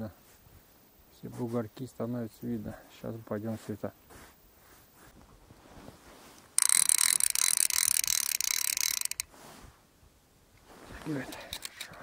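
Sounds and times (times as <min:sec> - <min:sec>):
fishing reel ratcheting whirr: 0:06.6 - 0:09.3.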